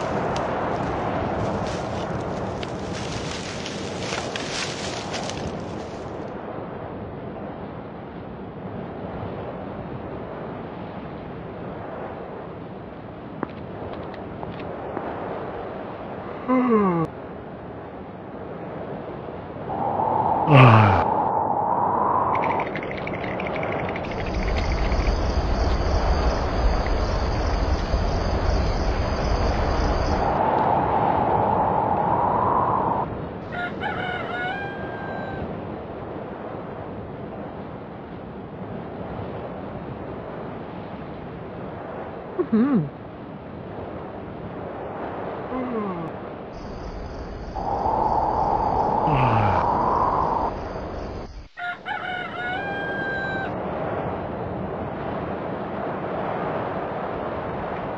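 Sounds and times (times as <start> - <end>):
crickets trilling: 0.0 - 6.2, 19.7 - 35.2, 46.6 - 53.5
rooster crowing: 33.4 - 35.5, 51.5 - 53.6.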